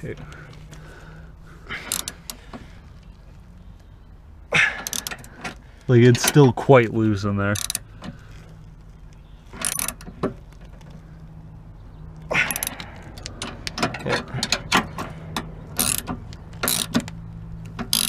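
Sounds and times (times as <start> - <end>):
hand ratchet clicking: 1.8 - 2.4, 4.8 - 5.5, 7.6 - 7.8, 9.6 - 10.0, 12.4 - 18.0.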